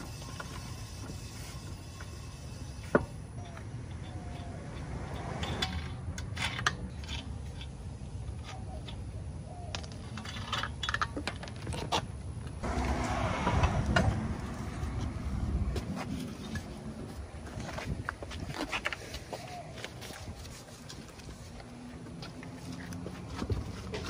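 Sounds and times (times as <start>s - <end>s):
wheel scraping off hub: 0.0s - 7.8s
metallic clicks of lug nuts: 3.4s - 7.8s.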